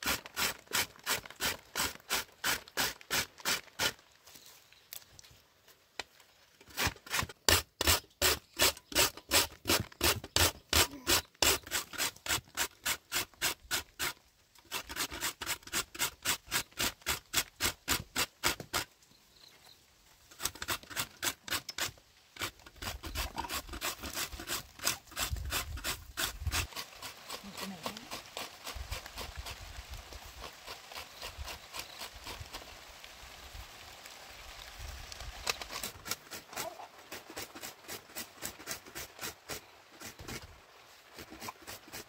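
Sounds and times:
root rasping on metal grater: 0:20.4 - 0:29.6.

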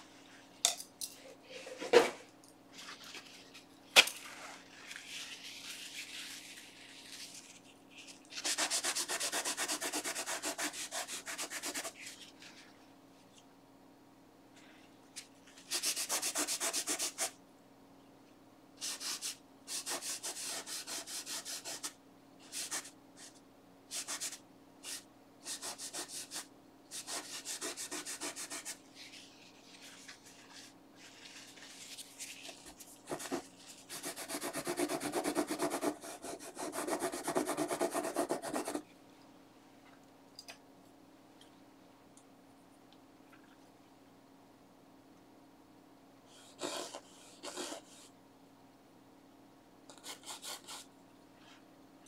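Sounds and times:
cloth rag rubbing on canvas: 0:26.9 - 0:35.6.

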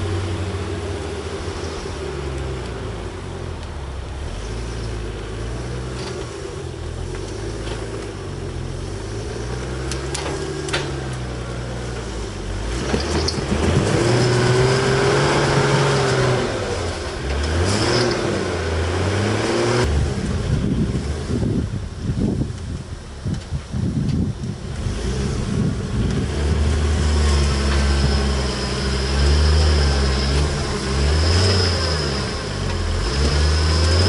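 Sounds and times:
engine revving under load: 0:00.0 - 0:22.0, 0:24.6 - 0:34.0.

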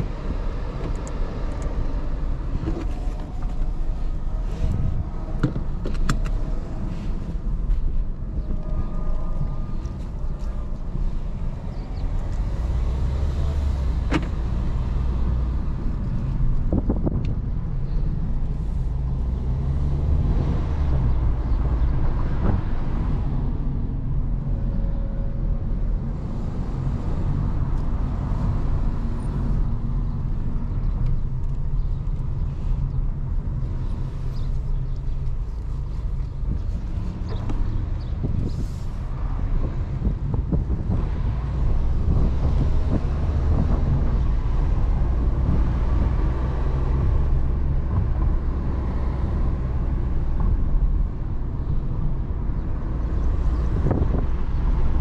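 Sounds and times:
car engine and tyre rumble: 0:00.0 - 0:55.0.

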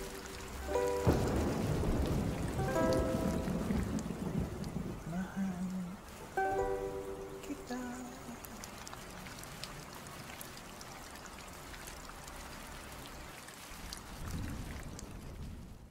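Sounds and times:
ukulele: 0:00.0 - 0:02.0, 0:02.6 - 0:04.0, 0:05.6 - 0:08.5
rain patter: 0:00.0 - 0:15.9
person singing: 0:05.1 - 0:08.7.

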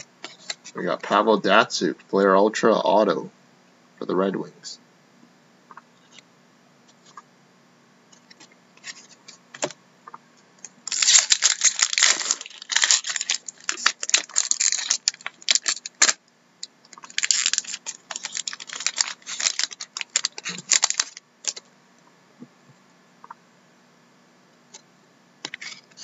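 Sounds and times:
foil wrapper crinkling and tearing: 0:10.6 - 0:21.7.

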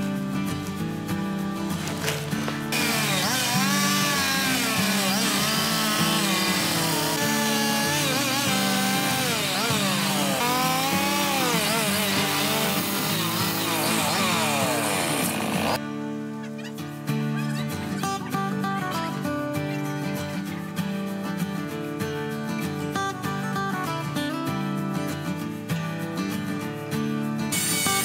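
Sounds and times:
chainsaw cutting log: 0:01.8 - 0:15.8, 0:27.5 - 0:28.0.

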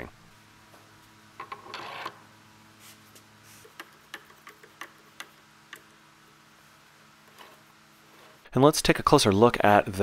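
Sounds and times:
faint steady hum: 0:00.0 - 0:10.0
handle scraping onto steel shaft: 0:07.3 - 0:08.4.

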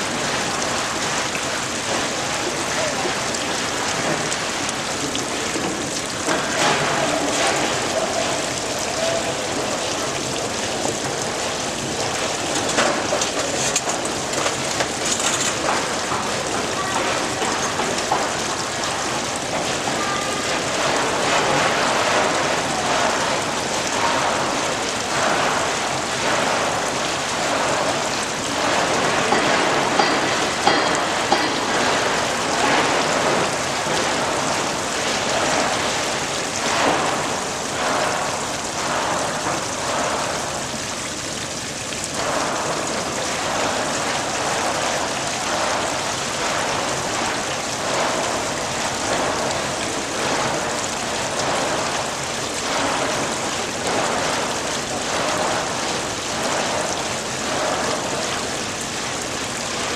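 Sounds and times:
running water splashing: 0:00.0 - 0:59.9.

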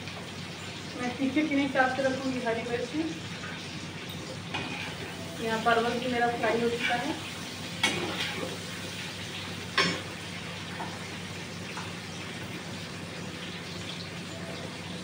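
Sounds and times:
vegetables sizzling in oil: 0:00.0 - 0:15.0
metal spoon clanking on pan: 0:07.8 - 0:08.5, 0:09.8 - 0:10.1.

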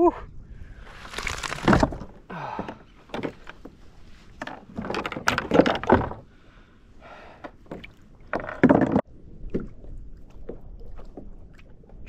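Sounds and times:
knocks and thumps on plastic kayak: 0:01.4 - 0:06.3, 0:07.7 - 0:09.1.

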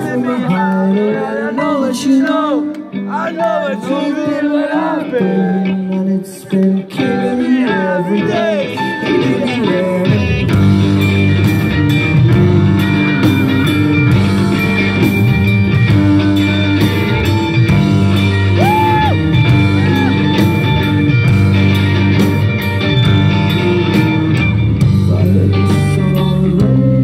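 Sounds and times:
electric guitars: 0:00.0 - 0:27.0
drums: 0:05.7 - 0:27.0
bass: 0:08.4 - 0:27.0.

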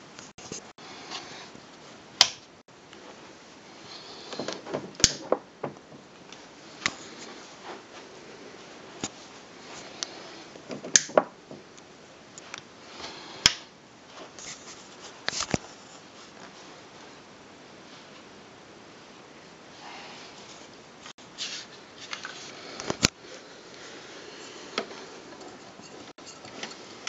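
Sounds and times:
handling clicks and rustles: 0:04.2 - 0:08.0.

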